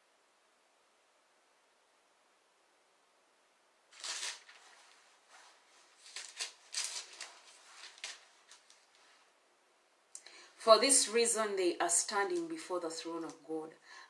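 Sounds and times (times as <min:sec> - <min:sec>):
paper rustling and crackling: 0:03.9 - 0:09.2.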